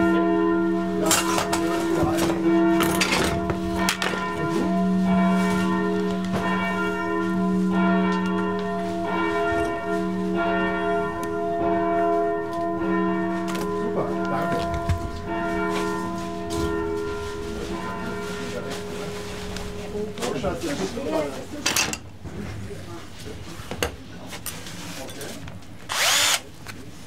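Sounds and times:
church bells ringing: 0:00.0 - 0:21.4.

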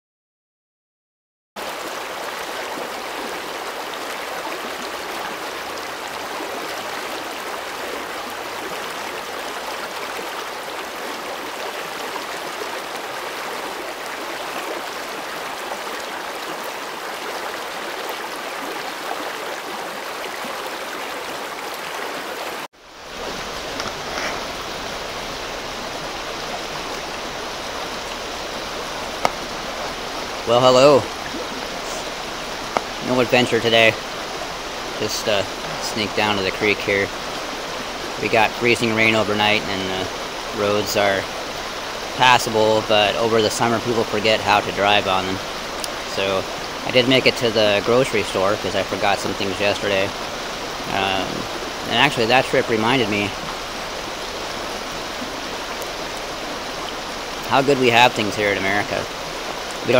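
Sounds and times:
creek rushing over rocks: 0:01.6 - 0:59.9.

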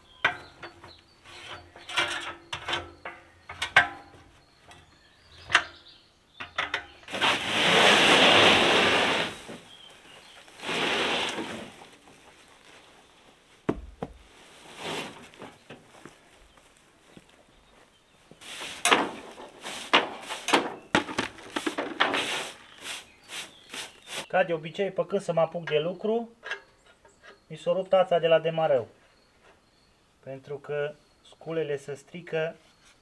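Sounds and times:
sack dragged across wooden floor: 0:07.1 - 0:11.9, 0:14.3 - 0:15.4
heavy thud: 0:13.7 - 0:14.2.

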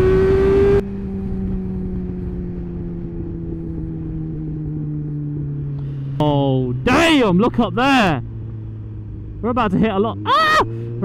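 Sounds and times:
sportbike engine revving: 0:00.0 - 0:00.8.

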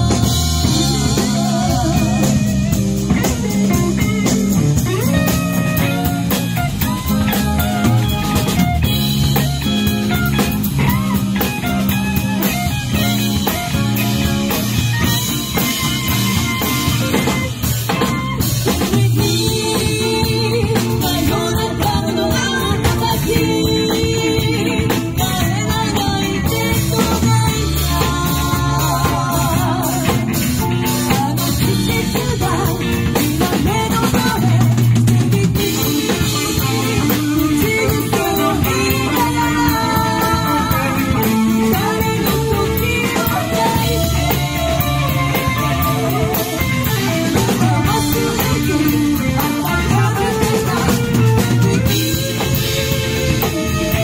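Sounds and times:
drum kit: 0:00.0 - 0:54.0
electric bass: 0:00.0 - 0:54.0
electric guitars: 0:00.0 - 0:54.0
woman singing lead: 0:00.0 - 0:54.0.

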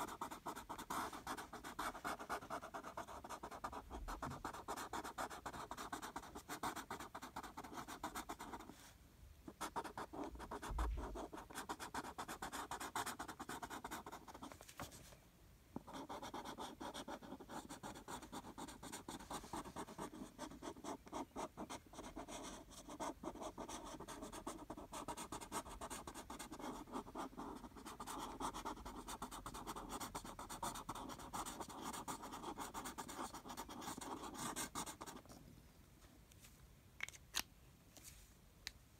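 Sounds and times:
marker scribbling on paper: 0:00.0 - 0:08.7, 0:15.9 - 0:35.2.

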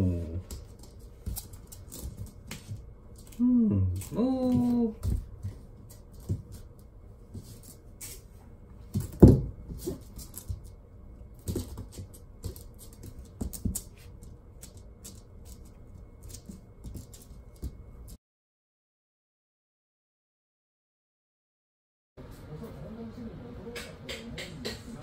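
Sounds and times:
paws tapping and scuffling: 0:00.4 - 0:03.4, 0:04.0 - 0:08.2, 0:08.8 - 0:18.2.

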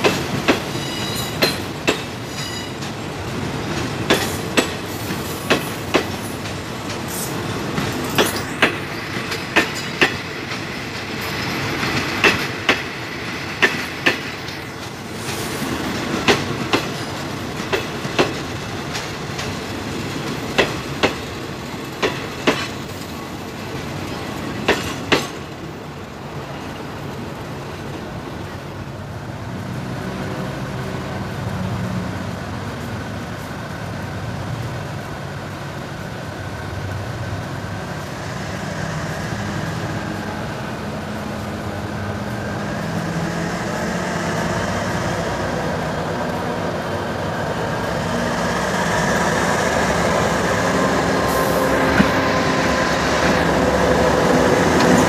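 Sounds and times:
train wheels clicking over rail joints: 0:00.0 - 0:27.2, 0:36.6 - 0:55.0
diesel locomotive engine running: 0:29.3 - 0:55.0.

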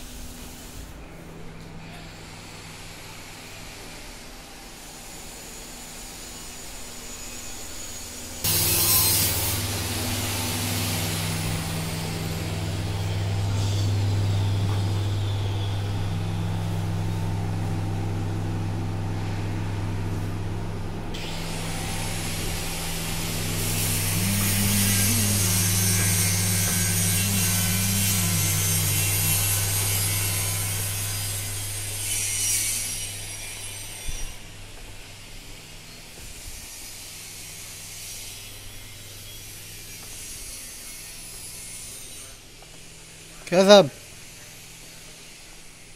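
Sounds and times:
loud airy hiss: 0:02.2 - 0:17.2, 0:21.2 - 0:31.9
machine motor humming: 0:08.4 - 0:32.4.

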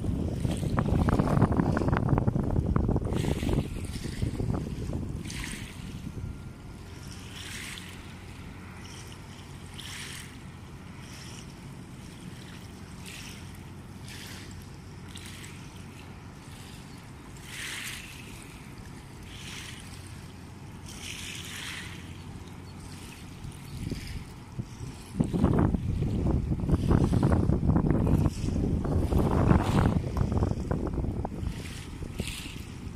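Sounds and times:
wind swishes: 0:00.0 - 0:06.7, 0:23.1 - 0:32.9
waves lapping at riverbank: 0:00.0 - 0:32.9.

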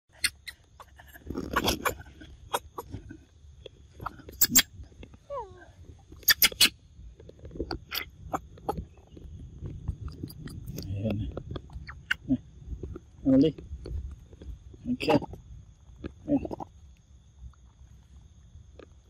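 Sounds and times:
monkey squeak: 0:00.1 - 0:02.6, 0:04.3 - 0:04.7, 0:06.2 - 0:06.7
monkey clicks and smacks: 0:09.6 - 0:12.2.

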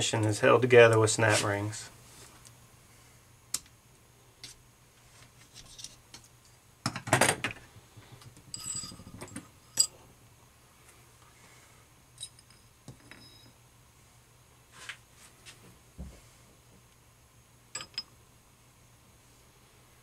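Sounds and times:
small metal parts clinking and scraping: 0:05.4 - 0:06.0, 0:08.3 - 0:10.0, 0:12.2 - 0:13.6
ringing metal clatter: 0:08.5 - 0:09.9.

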